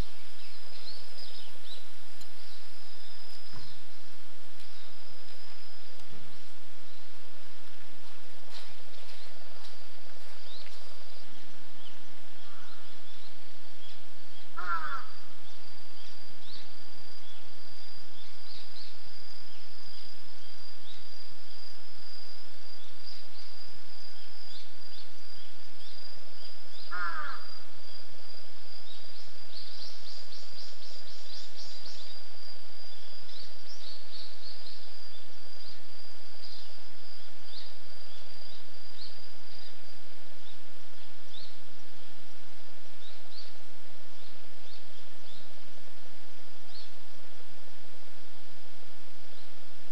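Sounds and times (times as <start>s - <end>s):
small birds chirping: 0.0s - 7.3s, 8.1s - 28.2s, 28.8s - 42.2s
crow cawing: 12.4s - 13.0s, 14.6s - 15.3s, 26.9s - 27.6s.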